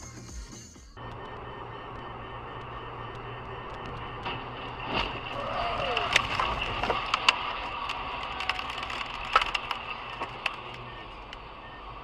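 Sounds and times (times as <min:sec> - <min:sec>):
in-car road noise: 0:00.0 - 0:12.0
debris striking car: 0:03.8 - 0:10.8.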